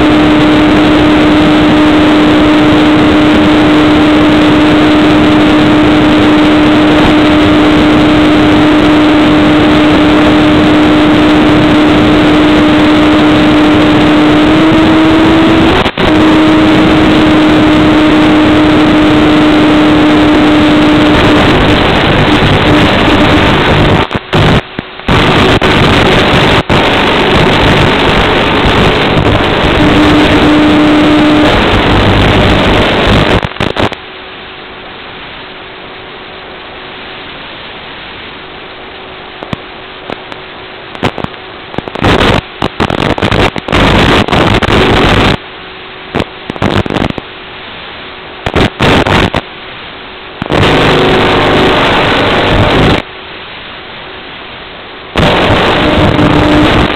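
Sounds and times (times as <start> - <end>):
electric motor and propeller whine: 0.0 - 33.4, 50.4 - 53.1, 55.2 - 56.9
video-link radio hiss: 0.0 - 34.1, 36.6 - 56.9.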